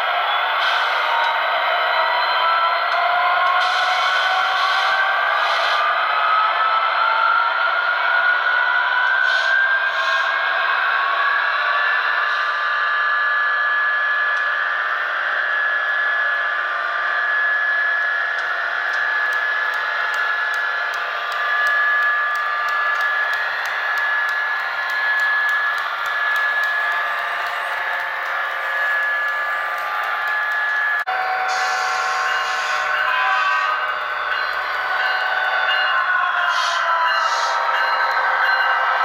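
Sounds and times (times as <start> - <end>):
model train motor whine: 9.0 - 38.6
wheels rolling on track: 18.4 - 35.8.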